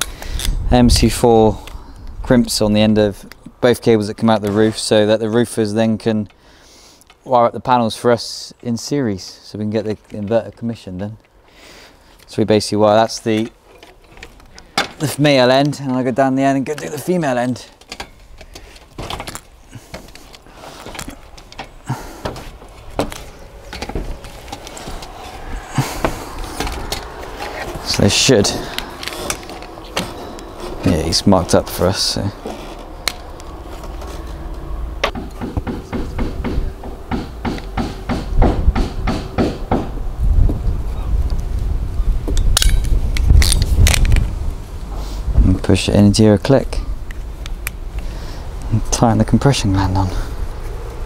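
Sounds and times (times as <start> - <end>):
boots knocking on roof tiles: 22.0 - 23.2
low rumble: 22.6 - 35.1.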